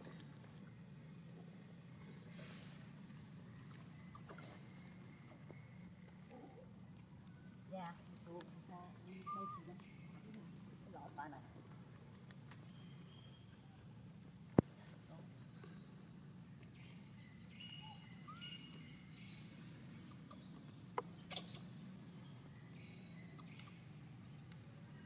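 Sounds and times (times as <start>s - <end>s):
high insect drone: 0.0s - 25.0s
insect chirps: 0.0s - 25.0s.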